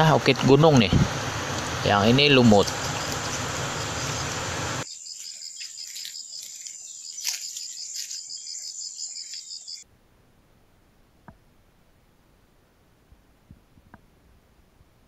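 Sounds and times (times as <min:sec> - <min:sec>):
noisy hiss: 0:00.0 - 0:04.9
insects trilling: 0:01.8 - 0:09.8.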